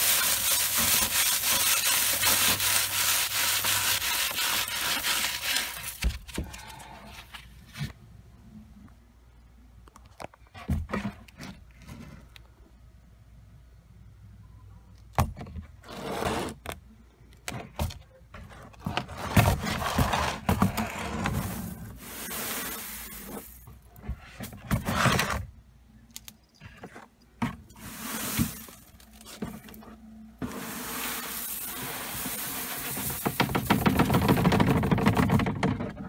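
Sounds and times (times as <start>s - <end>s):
plastic tote knocking and scraping: 17.8s - 22.3s, 32.2s - 36.0s
steady hiss: 21.6s - 23.6s, 30.4s - 33.7s.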